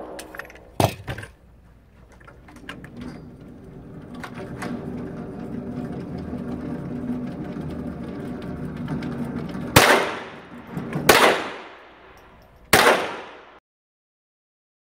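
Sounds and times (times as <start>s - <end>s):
motorised target carrier humming: 0.0s - 12.7s
gunshots echoing indoors: 9.8s - 13.6s.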